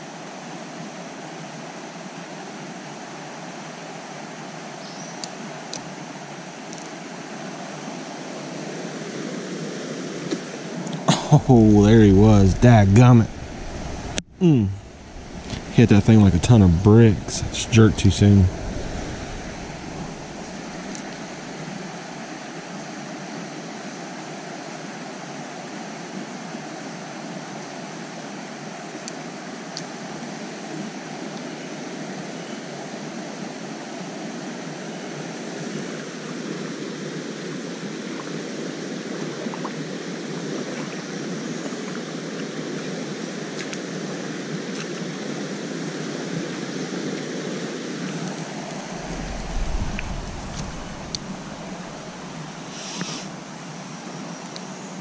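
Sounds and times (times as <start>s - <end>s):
creek rushing over rocks: 5.4s - 22.7s, 37.9s - 53.8s.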